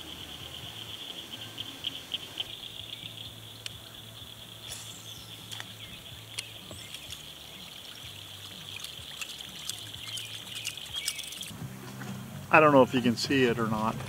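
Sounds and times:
small clicks: 8.6s - 11.5s.

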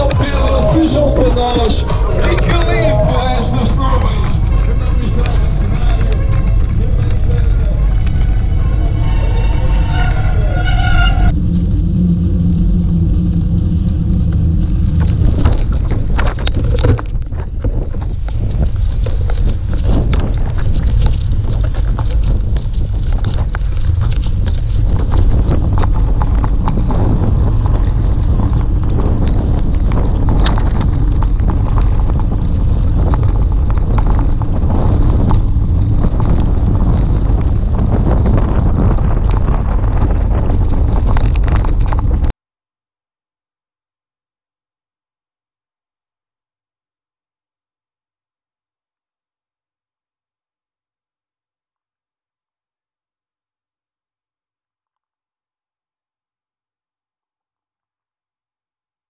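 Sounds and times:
bike rattling over stones: 0.0s - 11.3s, 12.7s - 42.3s
wind buffeting microphone: 0.0s - 42.3s.

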